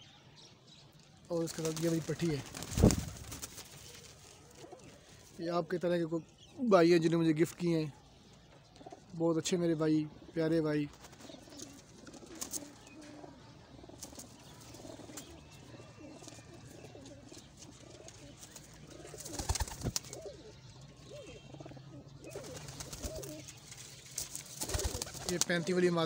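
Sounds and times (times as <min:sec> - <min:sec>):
pigeons cooing: 0:10.1 - 0:23.6, 0:24.5 - 0:26.0.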